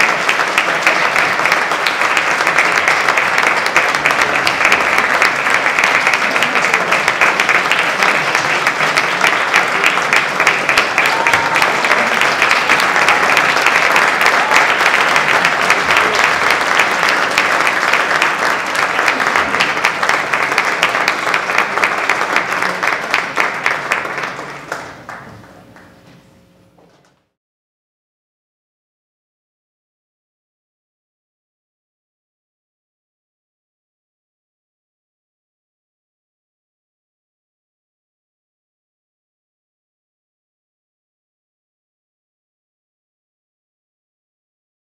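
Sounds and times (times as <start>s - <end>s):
audience applauding: 0.0s - 26.0s.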